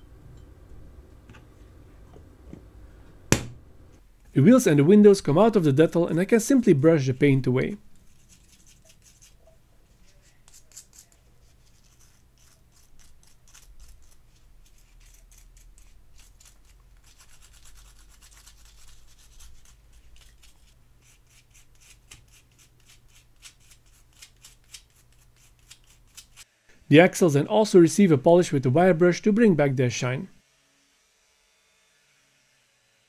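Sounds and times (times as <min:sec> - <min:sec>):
brush scrubbing plastic: 0:08.0 - 0:26.4.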